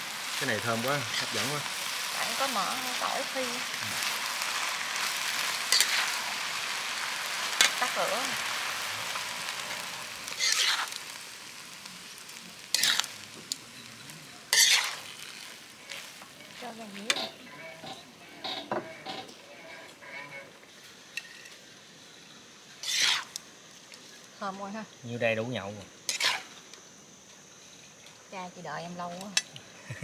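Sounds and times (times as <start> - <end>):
food sizzling in a pan: 0.0 - 30.0
spatula scraping a pan: 0.7 - 11.2, 12.7 - 13.2, 14.5 - 20.6, 22.8 - 23.4, 26.1 - 26.6.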